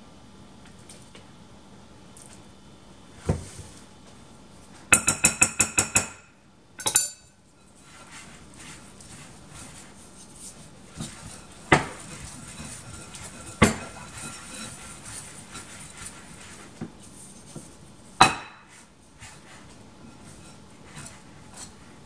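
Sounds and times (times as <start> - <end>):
wooden spoon scraping bowl: 7.6 - 17.8, 18.6 - 22.0.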